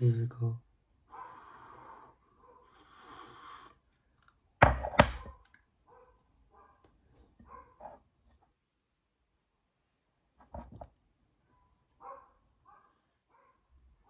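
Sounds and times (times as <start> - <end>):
person slurping tea: 2.8 - 3.8
mug knocking on counter: 4.6 - 5.4.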